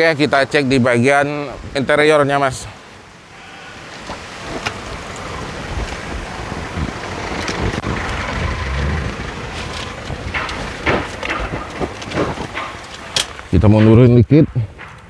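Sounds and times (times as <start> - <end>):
wind buffeting microphone: 3.9 - 15.0.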